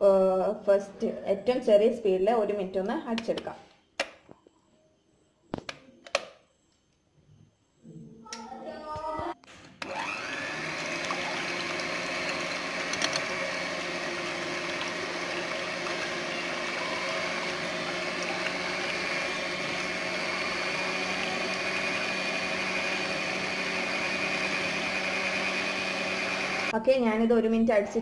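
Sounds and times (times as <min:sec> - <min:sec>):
electric hand mixer whisking: 0:09.8 - 0:26.8.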